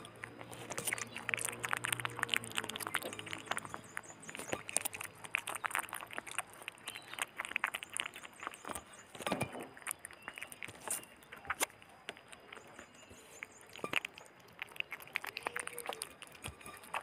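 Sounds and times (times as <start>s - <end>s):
otter chewing raw fish: 0.0s - 17.0s.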